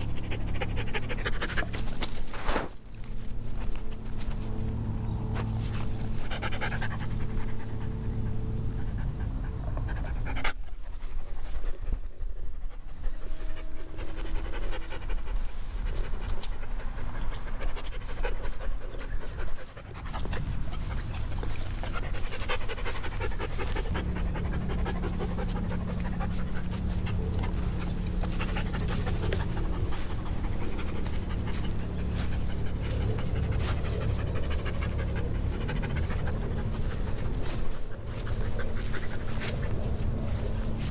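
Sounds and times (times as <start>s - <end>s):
dog panting: 0.0s - 2.4s, 5.4s - 40.9s.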